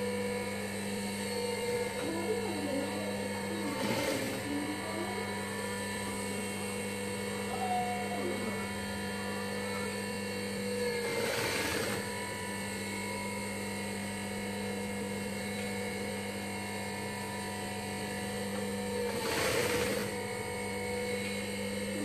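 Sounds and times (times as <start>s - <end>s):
sewing machine motor humming: 0.0s - 16.2s, 16.9s - 22.0s
sewing machine stitching: 3.4s - 4.6s, 10.9s - 12.1s, 19.0s - 20.3s.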